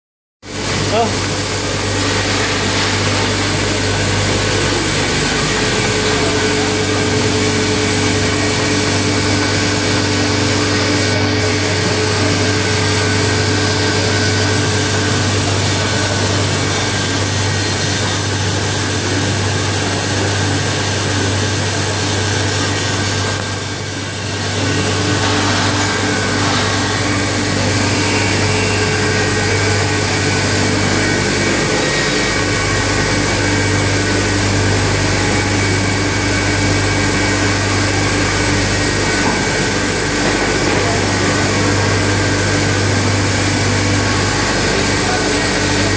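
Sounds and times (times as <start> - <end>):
machine whirring with low hum: 0.4 - 45.9.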